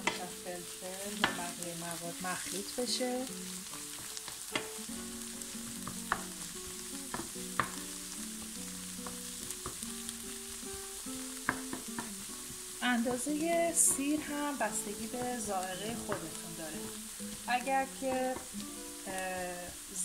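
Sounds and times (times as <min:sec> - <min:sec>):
soft plucked background music: 0:00.0 - 0:20.0
vegetables sizzling in a frying pan: 0:00.0 - 0:20.0
spatula scraping and tapping pan: 0:03.9 - 0:04.8, 0:05.8 - 0:06.4, 0:07.0 - 0:07.9, 0:11.4 - 0:12.2.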